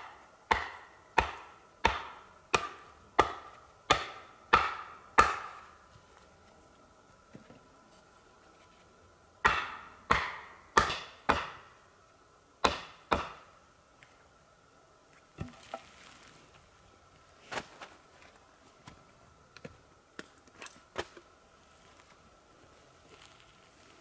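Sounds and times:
wood being chopped: 0.0 - 5.6, 9.4 - 11.7, 12.6 - 13.5.

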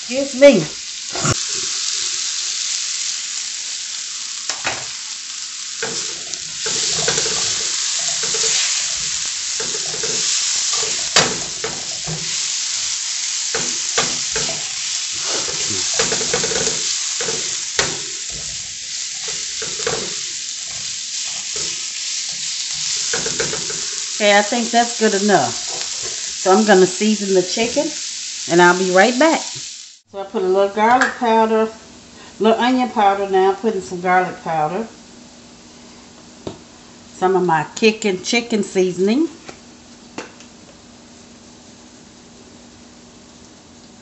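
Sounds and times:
vegetables sizzling: 0.0 - 36.5
spatula scraping and tapping pan: 5.8 - 12.4, 13.5 - 24.1.

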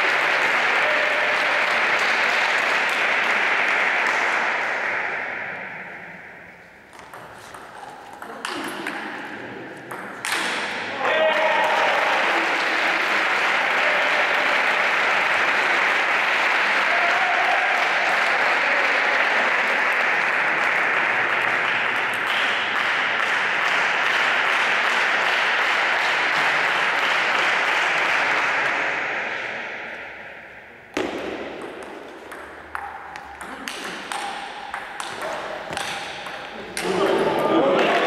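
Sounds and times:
spectators applauding: 0.0 - 4.9, 11.1 - 28.9.

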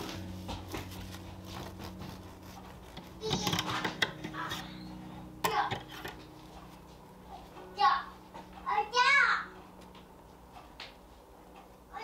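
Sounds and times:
steady low hum: 0.0 - 12.0
young child's voice: 3.2 - 4.7, 5.4 - 5.8, 7.8 - 9.5.

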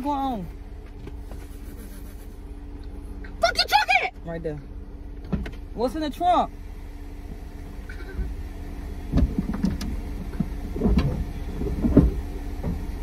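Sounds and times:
low rumble: 4.1 - 13.0
dull thumps: 9.1 - 13.0.

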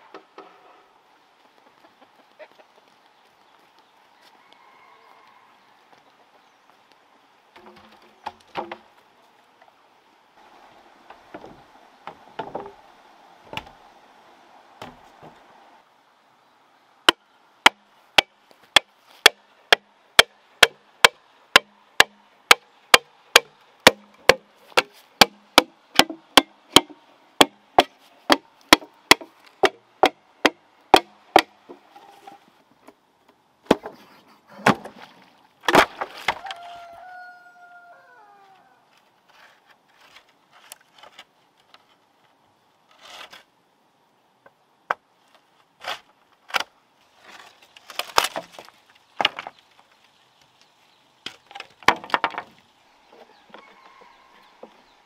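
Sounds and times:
machete chopping bamboo: 17.1 - 31.6, 35.7 - 36.6
bamboo cracking as it splits: 45.8 - 52.5.

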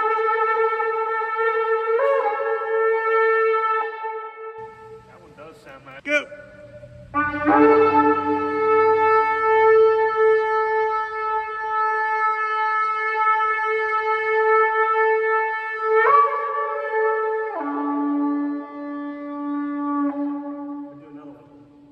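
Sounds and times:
shofar blast: 0.0 - 21.9.

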